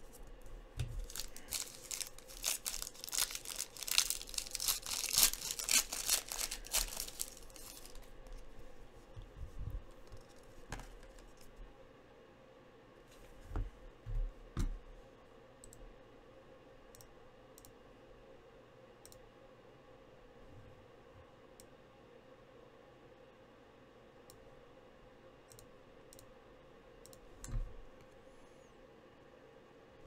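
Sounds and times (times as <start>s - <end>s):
low steady hum: 0.0s - 30.0s
trading cards clicking: 1.0s - 8.1s.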